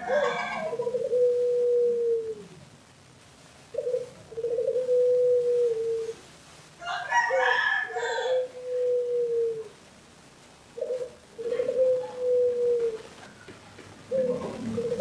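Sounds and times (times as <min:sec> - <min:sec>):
dove cooing: 0:00.0 - 0:02.6, 0:03.7 - 0:06.2, 0:07.3 - 0:09.8, 0:10.8 - 0:15.0.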